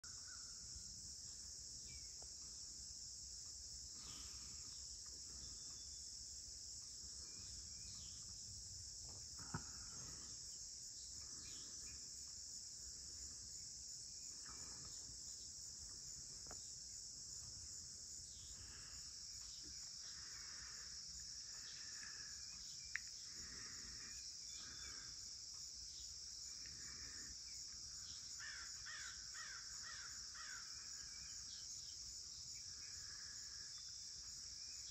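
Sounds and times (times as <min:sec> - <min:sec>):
insects singing: 0:00.0 - 0:34.9
crows cawing: 0:28.4 - 0:30.8.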